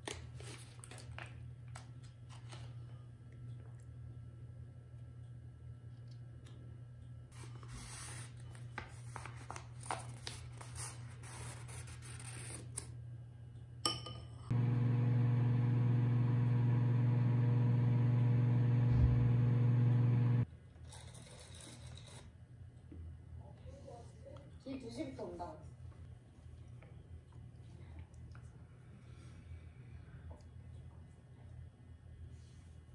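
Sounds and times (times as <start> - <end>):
electric appliance humming: 14.5 - 20.5.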